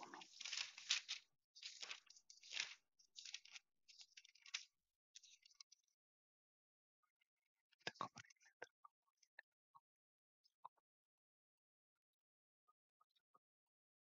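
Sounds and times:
thin pages being turned: 0:00.0 - 0:05.6.

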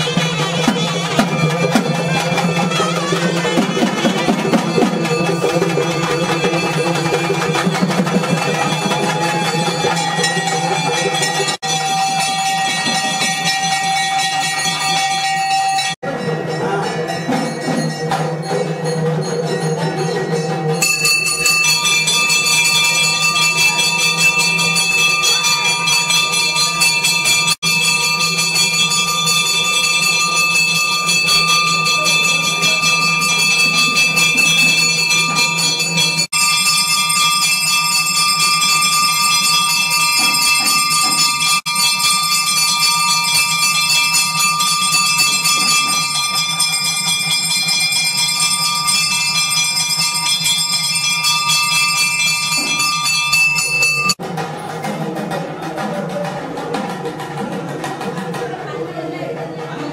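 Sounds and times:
temple bells ringing: 0:00.0 - 0:54.5.

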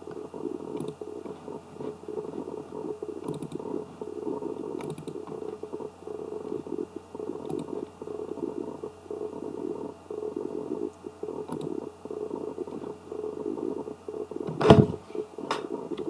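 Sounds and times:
faint hum: 0:00.0 - 0:16.0
grainy background noise: 0:00.0 - 0:16.0
computer mouse clicks: 0:00.6 - 0:01.6, 0:03.2 - 0:03.7, 0:04.6 - 0:05.7, 0:07.3 - 0:07.9, 0:10.9 - 0:11.8.

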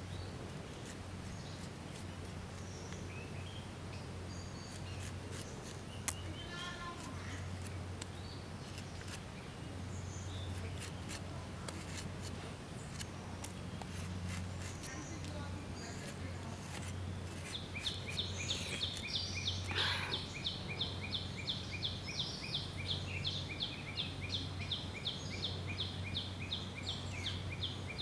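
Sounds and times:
birds chirping: 0:00.0 - 0:28.0
knife slicing crisp fruit: 0:04.6 - 0:06.2, 0:10.5 - 0:19.1.

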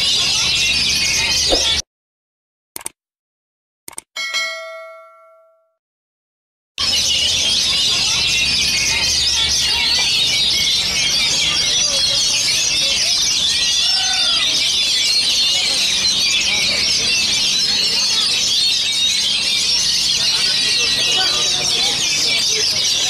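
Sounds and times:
chorus of songbirds: 0:00.0 - 0:01.8, 0:06.8 - 0:23.0.

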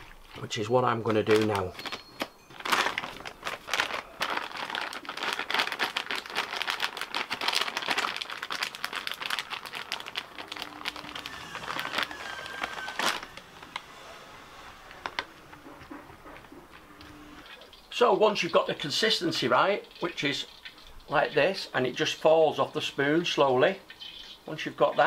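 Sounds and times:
plastic packet crinkling: 0:00.0 - 0:16.0.

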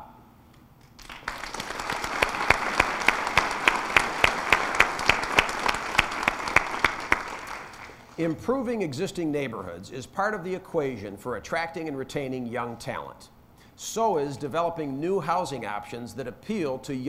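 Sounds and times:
sharp nearby hand claps: 0:00.8 - 0:08.0
audience applauding: 0:00.8 - 0:08.2.

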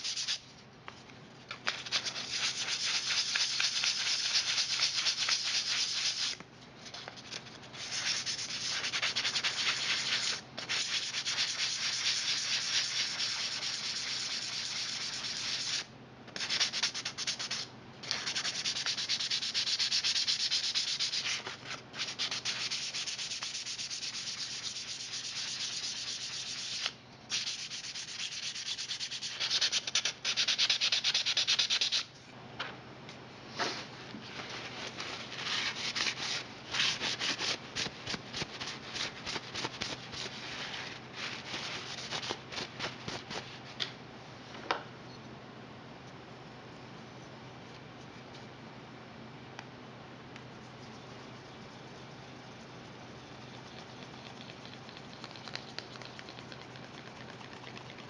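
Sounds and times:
sandpaper scratching: 0:00.0 - 0:00.4, 0:01.7 - 0:06.4, 0:07.8 - 0:32.1.

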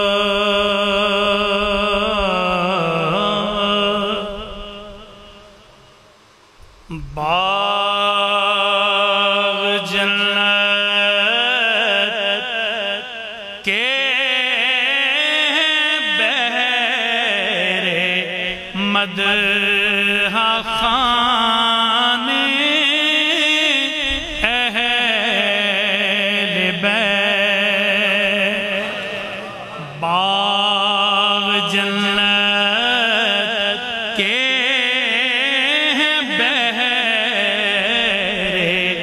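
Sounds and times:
man singing devotional song: 0:00.0 - 0:06.1, 0:06.8 - 0:39.0.

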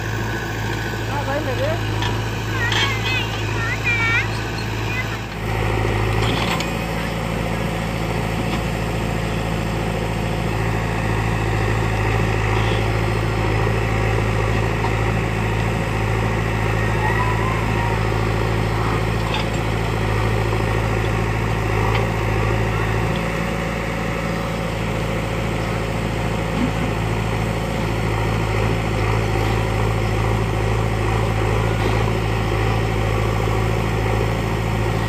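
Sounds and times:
diesel engines running: 0:00.0 - 0:35.0.

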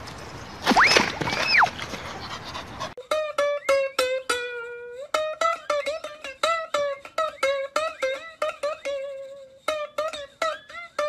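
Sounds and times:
plucked string instrument music: 0:03.0 - 0:11.0.

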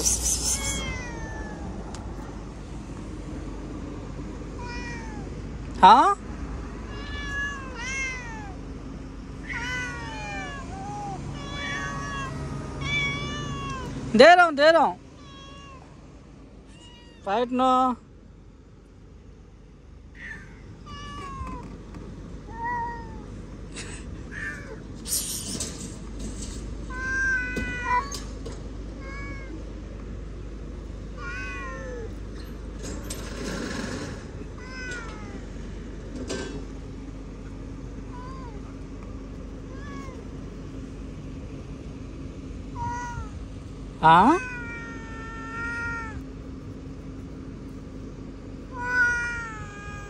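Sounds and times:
cat meowing: 0:00.0 - 0:01.8, 0:04.6 - 0:05.4, 0:06.8 - 0:08.6, 0:09.4 - 0:14.1, 0:15.2 - 0:15.9, 0:16.7 - 0:17.3, 0:20.1 - 0:21.7, 0:22.5 - 0:23.3, 0:26.9 - 0:28.3, 0:29.0 - 0:29.6, 0:31.2 - 0:32.2, 0:38.1 - 0:38.7, 0:39.7 - 0:40.3, 0:42.7 - 0:43.5, 0:44.2 - 0:46.3, 0:48.7 - 0:50.0.

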